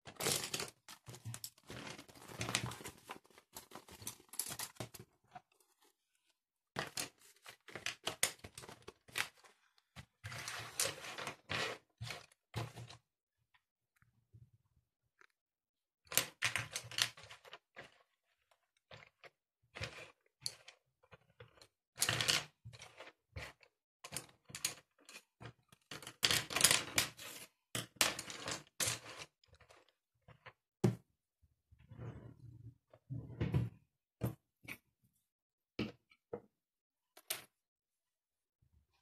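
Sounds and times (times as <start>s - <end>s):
household items clattering: 0.0s - 5.8s
clicks and scraping: 0.0s - 5.9s.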